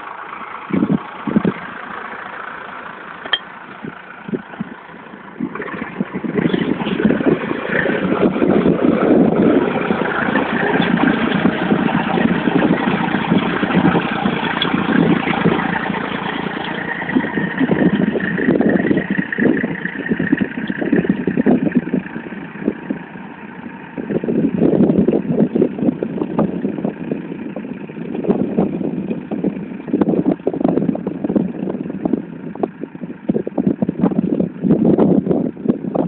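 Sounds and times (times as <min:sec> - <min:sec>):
tractor engine running: 0:00.0 - 0:36.0.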